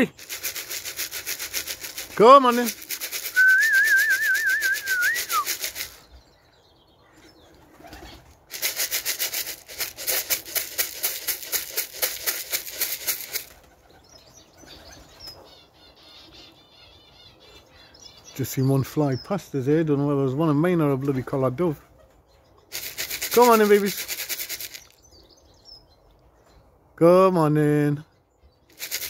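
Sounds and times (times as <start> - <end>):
feed rattling in a tin: 0.1 - 3.4, 8.5 - 13.5, 22.7 - 24.9, 28.7 - 29.0
warbling whistle: 3.3 - 5.5.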